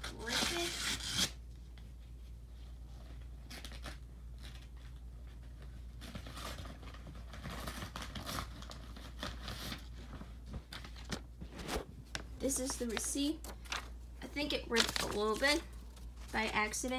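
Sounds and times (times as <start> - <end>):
cardboard package tearing: 0.0 - 1.4, 6.0 - 9.8.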